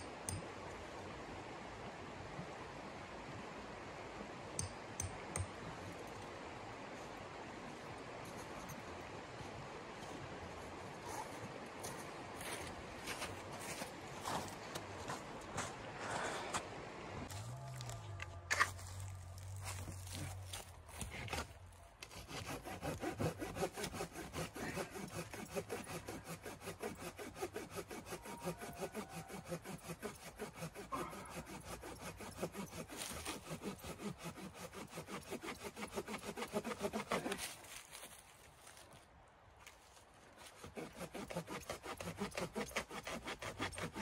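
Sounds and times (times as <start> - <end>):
hand saw cutting a branch: 19.4 - 38.8, 40.4 - 44.0.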